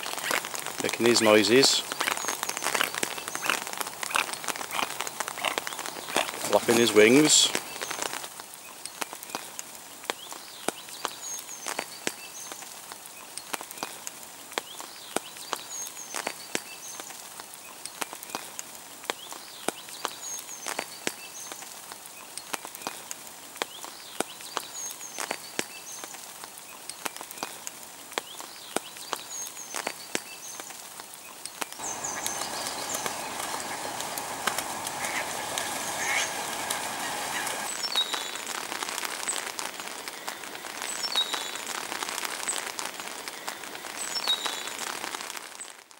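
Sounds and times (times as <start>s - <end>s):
splashing water: 0.0s - 8.3s, 31.8s - 43.2s
rain falling on a pond: 0.0s - 45.9s.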